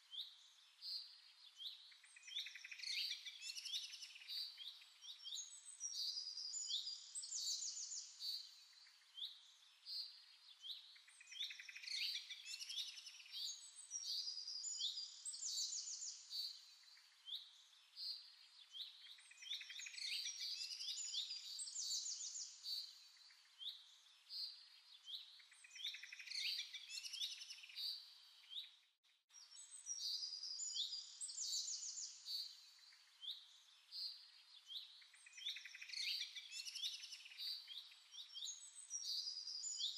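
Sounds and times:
small birds chirping and singing: 0.0s - 39.9s.

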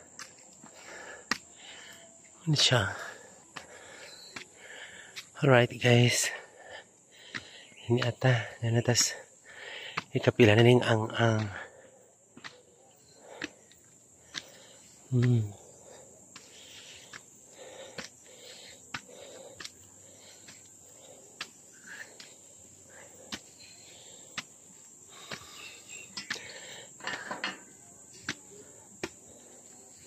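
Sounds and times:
crickets droning: 0.0s - 30.0s
footsteps on concrete stairs: 0.1s - 1.5s, 3.0s - 5.3s, 12.3s - 12.6s, 13.3s - 15.6s, 16.2s - 20.8s, 21.4s - 22.4s, 23.2s - 23.5s, 24.3s - 27.6s, 28.2s - 29.3s.

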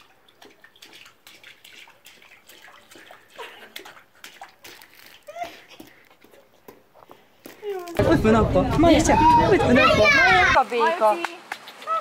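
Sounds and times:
water splashing in a bath: 0.0s - 6.1s.

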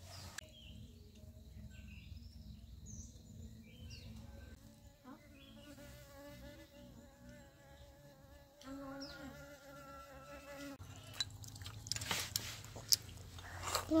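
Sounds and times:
flying insect buzzing: 4.0s - 10.8s.

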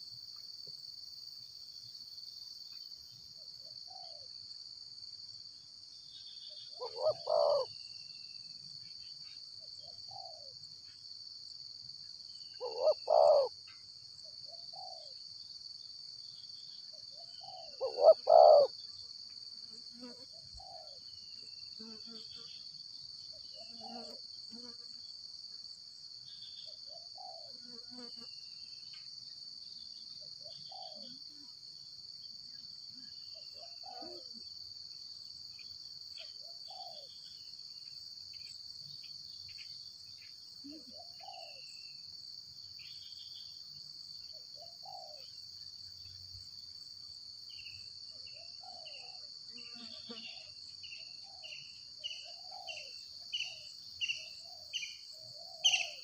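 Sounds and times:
high-pitched insect drone: 6.2s - 8.6s, 12.4s - 13.6s, 17.4s - 18.8s.

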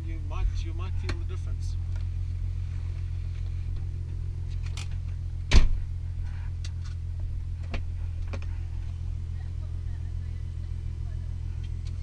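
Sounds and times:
car engine idling: 0.0s - 12.0s
car door slamming: 4.5s - 5.9s.

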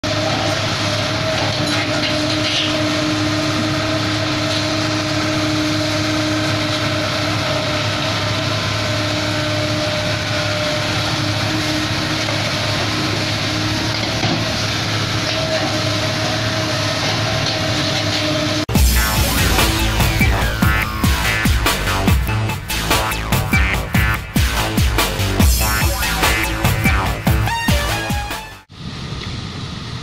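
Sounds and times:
excavator diesel engine running: 0.0s - 28.7s.

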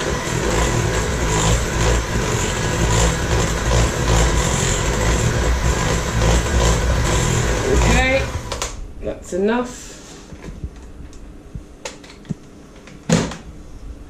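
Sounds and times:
electric hand mixer whisking batter: 0.0s - 8.6s.

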